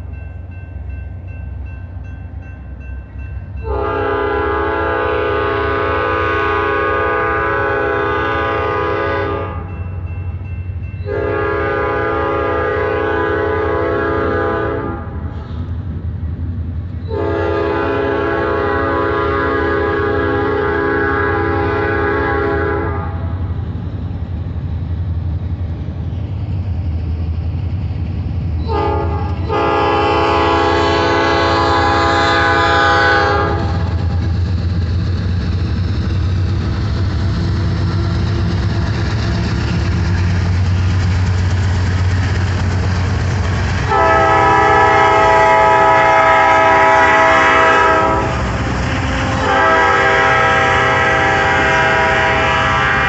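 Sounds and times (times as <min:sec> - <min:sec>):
diesel locomotive engines rumbling: 0:00.0 - 0:53.0
train air horn blasts: 0:03.6 - 0:09.7, 0:11.0 - 0:15.6, 0:17.1 - 0:23.5, 0:28.6 - 0:34.2, 0:43.8 - 0:53.0.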